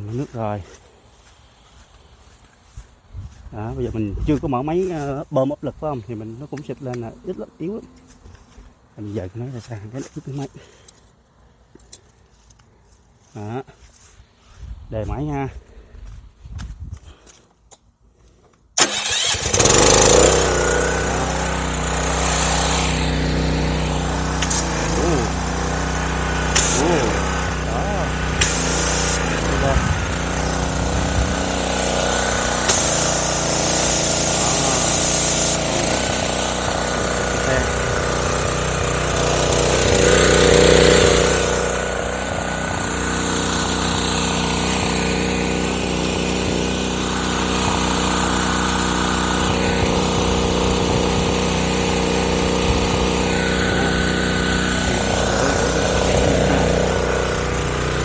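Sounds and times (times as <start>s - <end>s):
pressure washer engine running: 0.2s - 3.0s, 18.8s - 58.0s.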